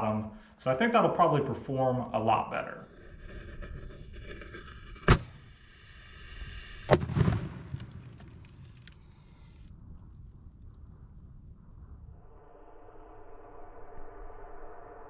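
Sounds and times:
low rumble and crackle: 2.7 - 14.9
sharp firework bangs: 6.9 - 8.6.

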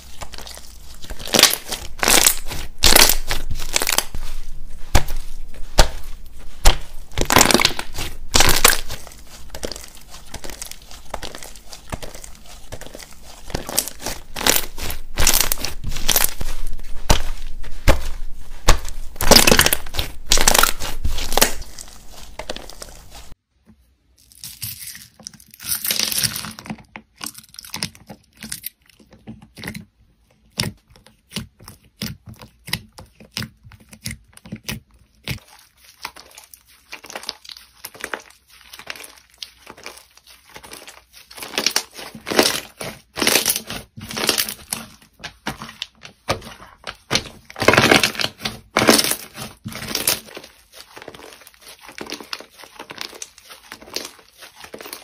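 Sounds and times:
slime crackling and squishing: 0.0 - 23.4, 24.2 - 55.0.

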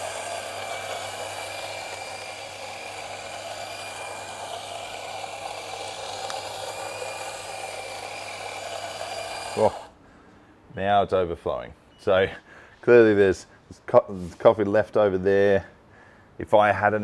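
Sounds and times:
coffee grinder grinding: 0.0 - 10.0.

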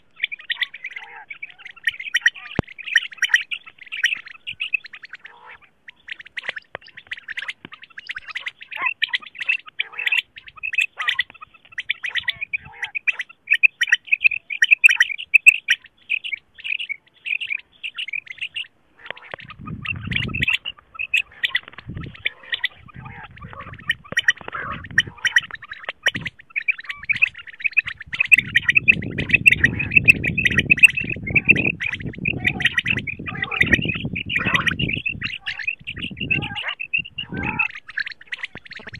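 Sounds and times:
low background noise: 0.0 - 38.9
quail calls: 0.0 - 38.9.

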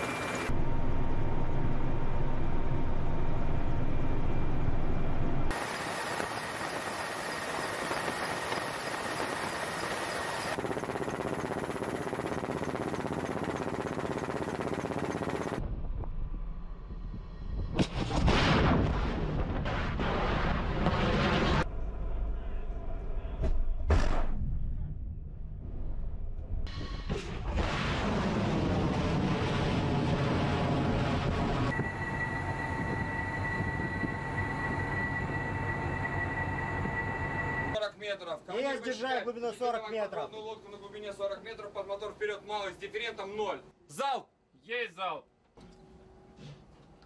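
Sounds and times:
helicopter engine and rotor rumble: 0.0 - 15.6, 30.7 - 37.8
missile launch blast: 17.7 - 21.6, 27.0 - 31.7.

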